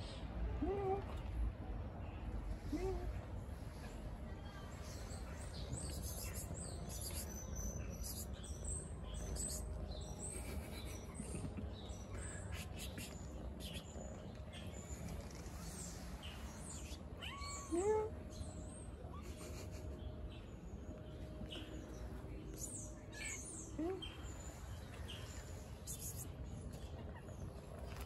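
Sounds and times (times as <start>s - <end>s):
faint birds chirping: 0.0s - 28.0s
cat meowing: 17.2s - 18.1s.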